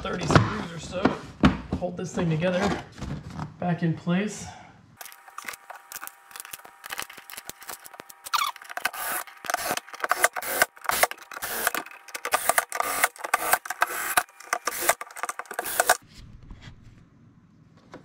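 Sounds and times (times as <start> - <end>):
screwdriver turning screws: 5.0 - 16.0.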